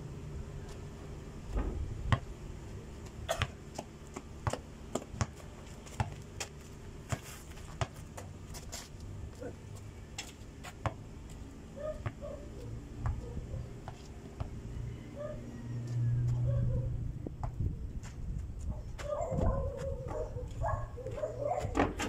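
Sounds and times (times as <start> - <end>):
basketball bouncing on dirt: 1.5 - 2.3, 3.0 - 8.7, 9.8 - 11.1, 13.0 - 14.6, 17.3 - 20.2.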